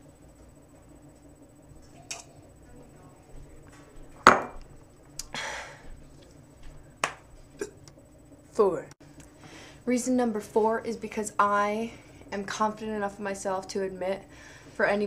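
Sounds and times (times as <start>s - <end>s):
hard objects knocking and clinking: 4.2s - 4.6s.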